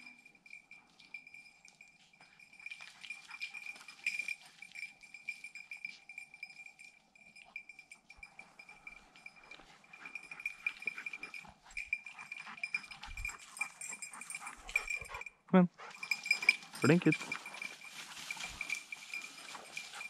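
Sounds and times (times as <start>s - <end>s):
small bell ringing: 0.0s - 20.0s
footsteps: 9.4s - 20.0s
rustling of brush: 15.9s - 20.0s.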